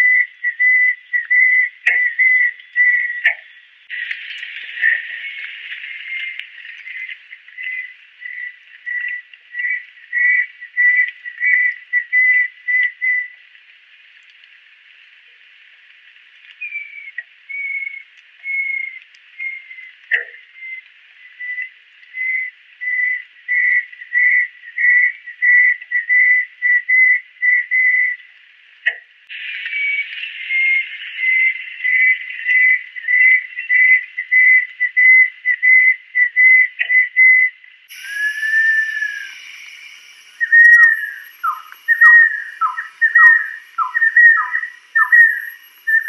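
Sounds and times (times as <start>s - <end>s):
kingfisher whistled calls: 0.0s - 3.6s, 4.8s - 13.4s, 16.6s - 28.2s, 29.3s - 46.0s
falling whistle: 37.9s - 46.0s.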